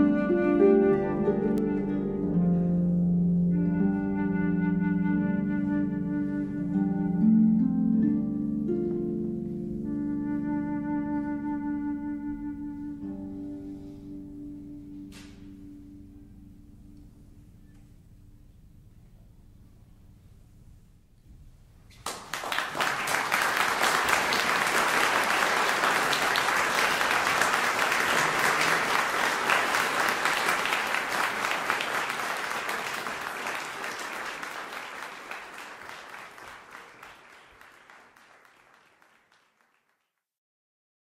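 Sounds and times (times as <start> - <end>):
audience applause: 22.0 - 40.2.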